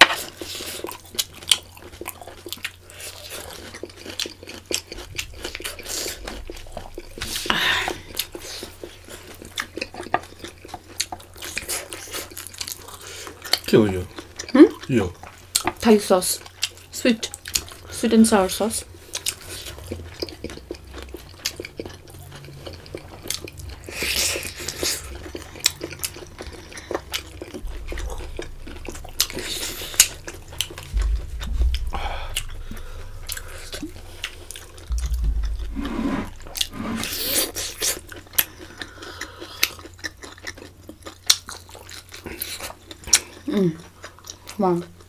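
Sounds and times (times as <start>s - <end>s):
chewing with wet mouth clicks: 0.0s - 35.6s, 36.6s - 45.0s
low thuds: 5.0s - 8.8s, 27.5s - 38.4s.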